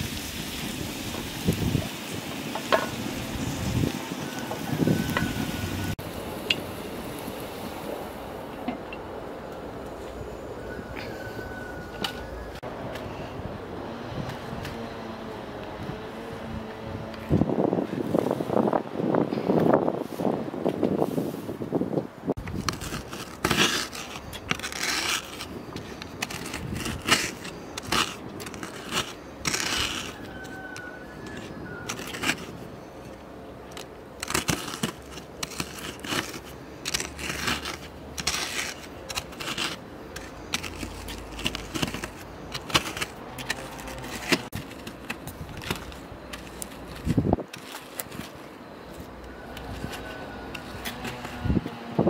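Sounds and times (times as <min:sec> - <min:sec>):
biscuits crunching: 0:33.2 - 0:51.3.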